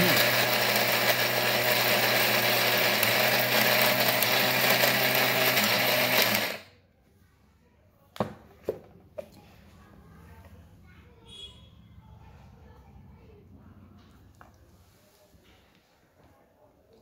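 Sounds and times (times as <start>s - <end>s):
mixer grinder motor whine: 0.0s - 6.7s.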